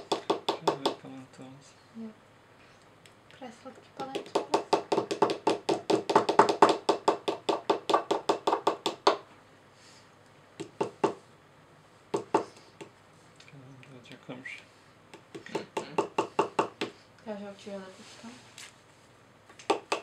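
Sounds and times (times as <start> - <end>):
small hammers tapping on plaster: 0.0 - 1.1, 4.0 - 9.2, 19.6 - 20.0.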